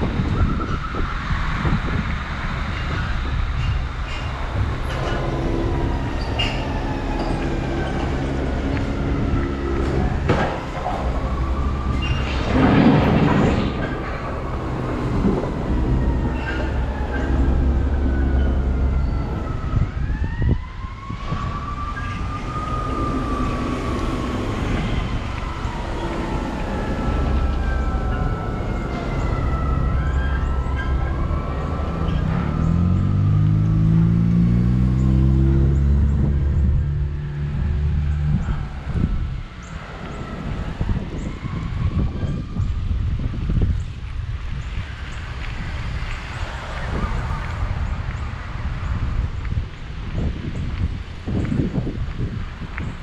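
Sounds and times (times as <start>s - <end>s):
emergency siren wailing: 0.0s - 49.4s
street traffic rumble: 0.0s - 53.0s.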